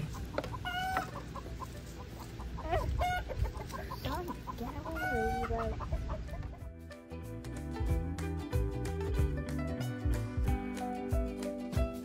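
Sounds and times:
hens clucking: 0:00.0 - 0:06.7
background music: 0:03.9 - 0:12.0.

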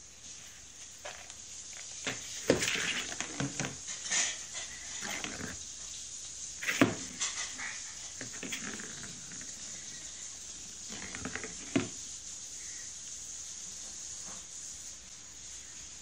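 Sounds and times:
cat thumping and scratching cardboard: 0:01.0 - 0:05.6, 0:06.6 - 0:09.8, 0:10.6 - 0:12.1.

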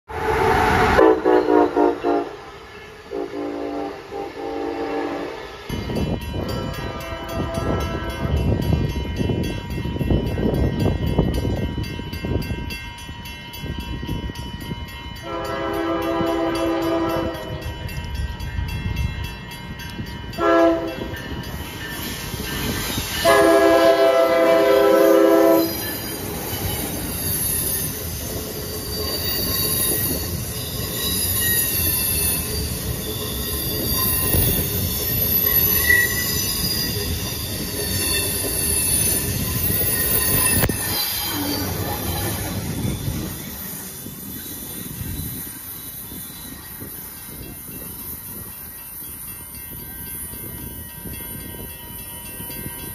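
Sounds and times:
train wheels rumbling on rail: 0:00.0 - 0:52.9
train horn blasts: 0:00.1 - 0:05.6, 0:06.4 - 0:08.5, 0:15.2 - 0:17.7, 0:20.3 - 0:21.2, 0:23.2 - 0:25.8
faint wheel squeal: 0:30.9 - 0:42.4.

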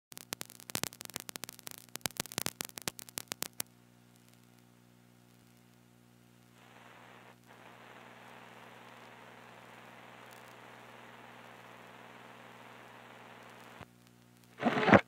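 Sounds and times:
clicks and pops: 0:00.1 - 0:04.4, 0:13.4 - 0:15.0
electrical mains hum: 0:00.2 - 0:15.0.

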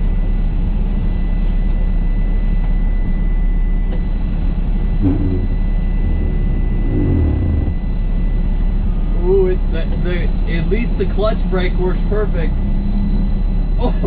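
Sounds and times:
diesel truck engine rumbling: 0:04.9 - 0:12.8.

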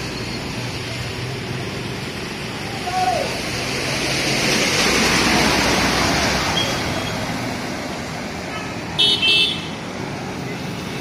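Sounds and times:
truck splashing through floodwater: 0:00.0 - 0:11.0
vehicle horn honks: 0:09.0 - 0:09.7.

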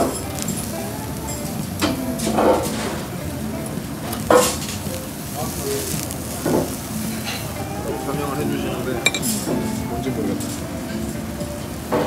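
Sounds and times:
meat sizzling on a grill: 0:00.0 - 0:12.0
sharp clink: 0:09.1 - 0:09.4.

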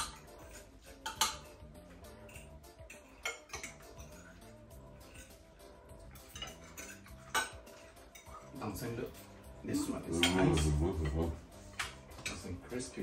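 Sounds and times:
cutlery clinking on plates: 0:00.0 - 0:08.6, 0:10.1 - 0:12.5
soft background music: 0:00.0 - 0:13.0.

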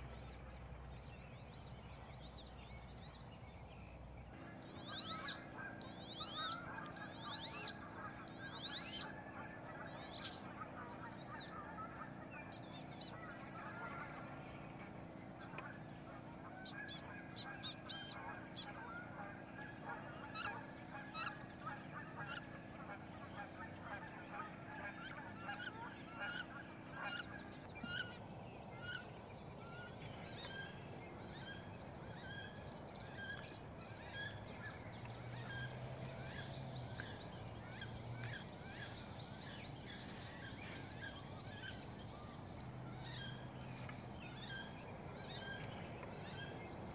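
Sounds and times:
ducks squealing calls: 0:04.7 - 0:14.4, 0:15.4 - 0:28.1.

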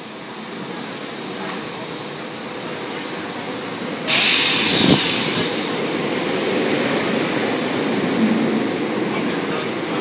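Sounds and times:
train rumbling past: 0:00.0 - 0:10.0
loud hiss: 0:04.1 - 0:05.8.

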